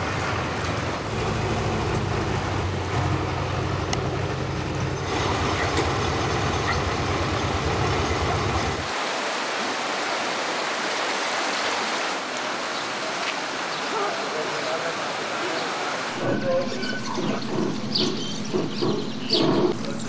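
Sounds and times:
tractor engine running: 0.0s - 8.9s, 16.2s - 20.0s
fast-flowing floodwater rushing: 0.0s - 18.0s.

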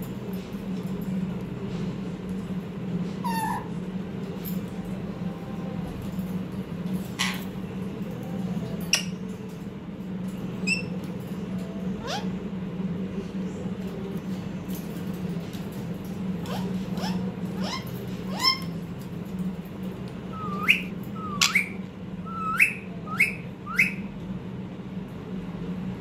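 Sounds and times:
steady low hum: 0.0s - 26.0s
parakeet sharp calls: 3.2s - 3.7s, 7.2s - 7.5s, 20.4s - 24.1s.

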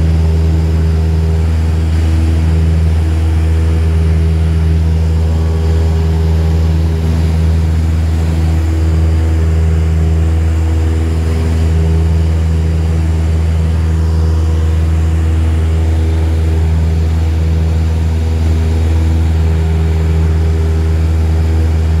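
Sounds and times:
propeller plane engine drone: 0.0s - 22.0s.

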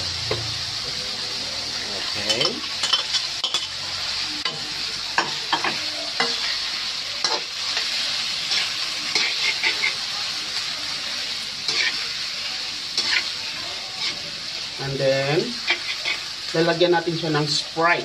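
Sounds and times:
meat sizzling in a frying pan: 0.0s - 18.0s
metal spatula scraping a pan: 2.0s - 10.0s, 11.6s - 12.1s, 13.0s - 14.3s, 15.6s - 16.3s.

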